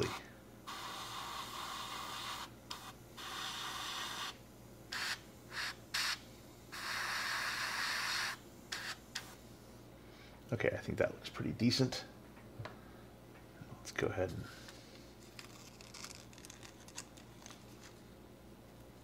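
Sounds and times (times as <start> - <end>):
airbrush spraying hiss: 0.0 - 9.4.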